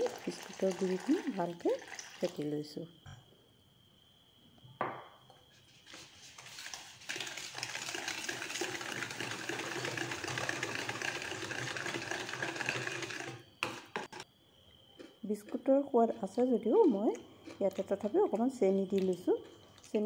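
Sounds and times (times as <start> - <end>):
whisk scraping in plastic bowl: 8.5 - 14.2.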